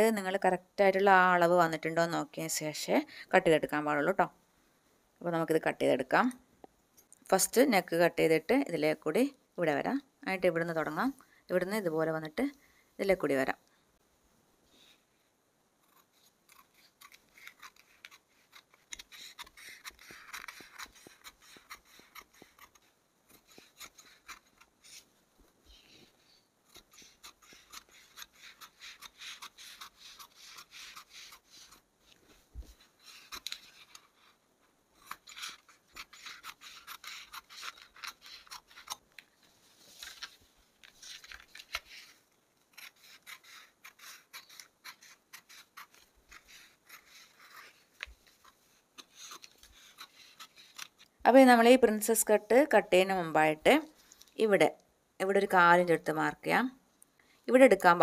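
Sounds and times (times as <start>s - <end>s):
scissors cutting fabric: 15.8s - 25.1s, 26.0s - 34.4s, 35.0s - 39.2s, 41.0s - 51.0s.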